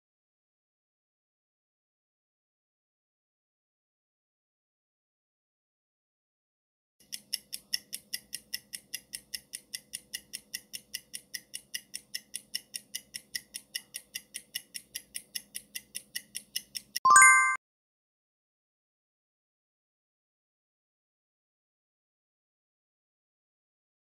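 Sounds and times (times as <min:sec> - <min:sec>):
clock ticking quickly: 0:07.0 - 0:17.0.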